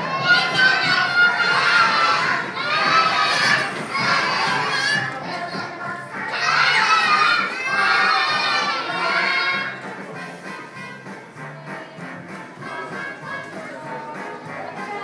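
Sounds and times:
children singing loudly: 0.0 - 9.8.

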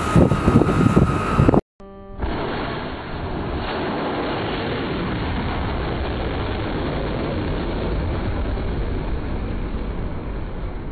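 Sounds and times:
rocket motor rushing: 0.0 - 1.6.

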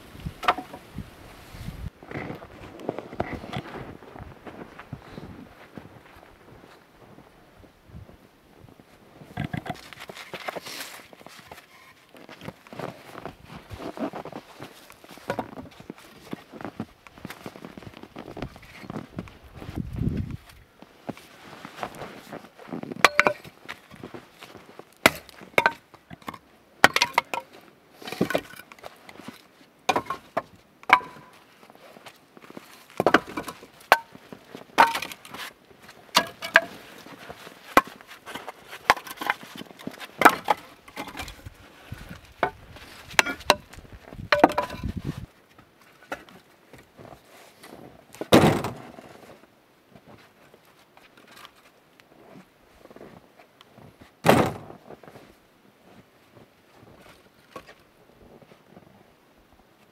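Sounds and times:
firewood knocking and clattering: 0.4 - 0.9, 15.2 - 15.8, 23.0 - 23.5, 25.0 - 27.5, 29.9 - 31.4, 32.9 - 35.4, 36.1 - 36.8, 37.7 - 41.5, 42.1 - 45.0.

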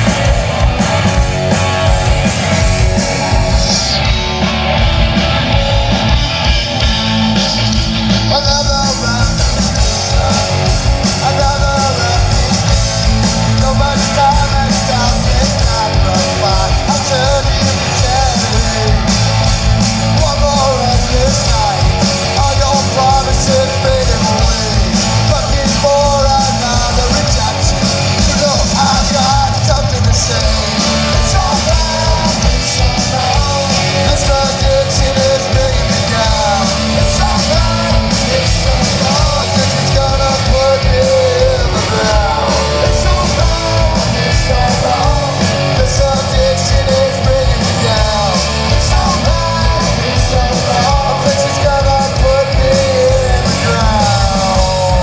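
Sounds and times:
drums: 0.0 - 55.0
electric guitars: 0.0 - 55.0
lead singer singing: 0.0 - 55.0.

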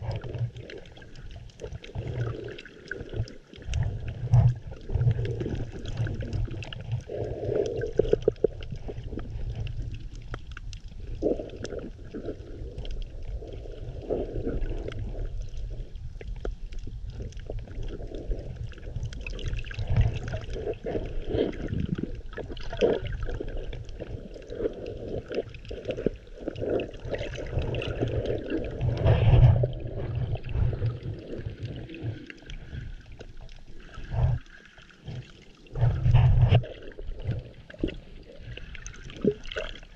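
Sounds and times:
low underwater rumble: 0.0 - 39.9
water gurgling underwater: 0.0 - 39.9.

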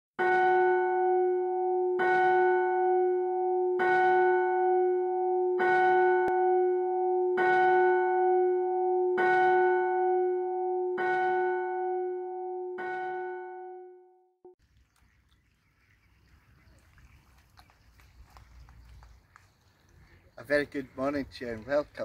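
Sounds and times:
church bell tolling: 0.2 - 14.0.

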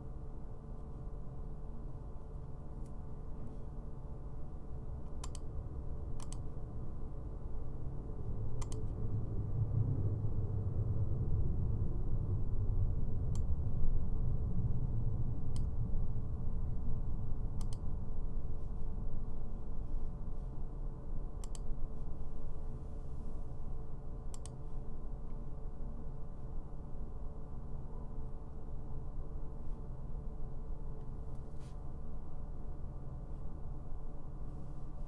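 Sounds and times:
steady low hum: 0.0 - 35.0
computer mouse clicking: 5.1 - 5.5, 6.2 - 6.5, 8.6 - 8.9, 17.6 - 17.8, 21.4 - 21.7, 24.3 - 24.6.

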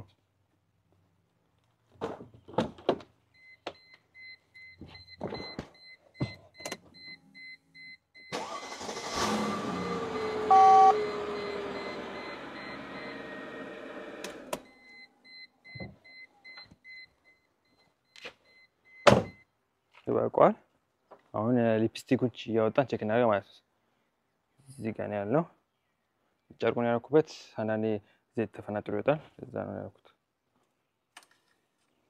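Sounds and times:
car engine starting and idling: 8.3 - 14.7
two-tone electronic beep: 10.2 - 13.2.

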